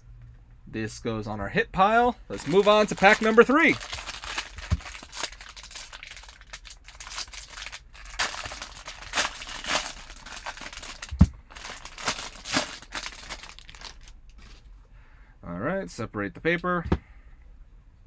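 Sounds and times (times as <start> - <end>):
foil wrapper crinkling and tearing: 2.3 - 14.4.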